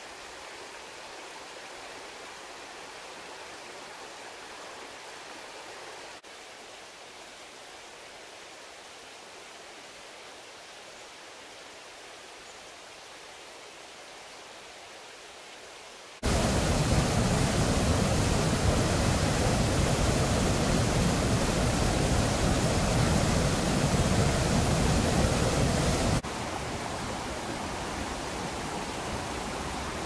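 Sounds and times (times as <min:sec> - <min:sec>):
stream flowing over rocks: 0:16.2 - 0:30.0
water rushing over weir: 0:16.2 - 0:30.0.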